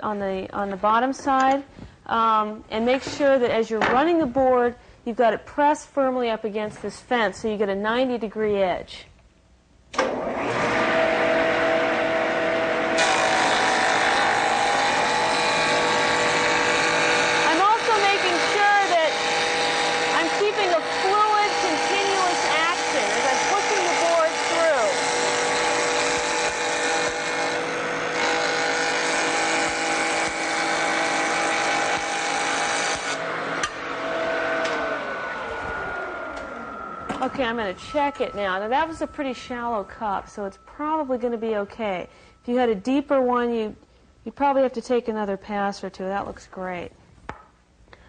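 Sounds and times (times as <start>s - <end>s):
jointer cutting wood: 10.0s - 38.9s
machine winding down: 10.0s - 40.7s.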